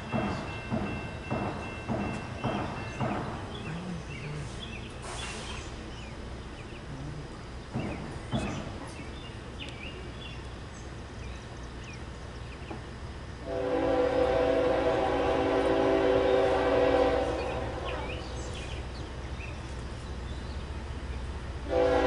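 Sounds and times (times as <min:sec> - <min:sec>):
locomotive air horn: 0:13.4 - 0:18.2, 0:21.6 - 0:22.0.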